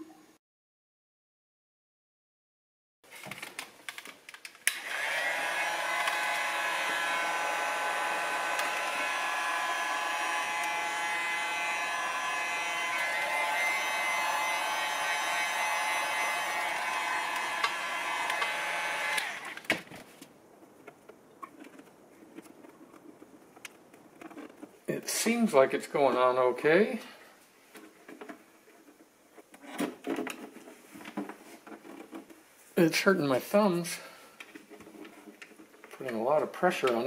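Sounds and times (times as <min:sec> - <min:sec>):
heat gun blowing with fan whine: 0:04.6 - 0:19.7.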